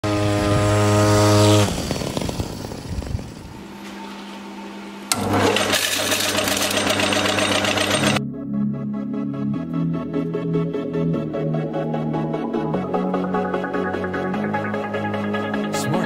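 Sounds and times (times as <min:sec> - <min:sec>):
small petrol engine buzzing: 0:00.0 - 0:04.2, 0:05.1 - 0:08.2
metal lathe running: 0:05.1 - 0:08.2.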